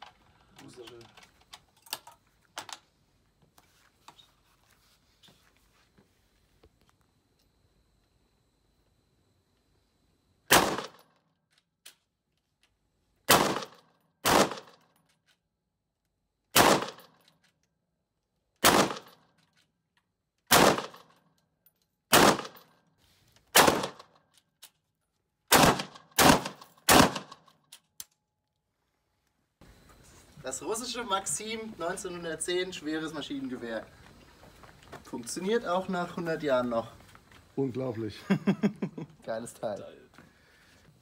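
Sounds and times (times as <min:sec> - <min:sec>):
gunshot echo off walls: 0:10.5 - 0:11.1, 0:13.3 - 0:14.8, 0:16.6 - 0:17.1, 0:18.6 - 0:19.2, 0:20.5 - 0:21.1, 0:22.1 - 0:22.6, 0:25.5 - 0:27.5
machine gun single shots: 0:10.5 - 0:11.1, 0:13.3 - 0:14.8, 0:16.5 - 0:17.2, 0:18.6 - 0:19.2, 0:20.5 - 0:21.2, 0:22.1 - 0:22.7, 0:23.5 - 0:24.1, 0:25.5 - 0:27.5.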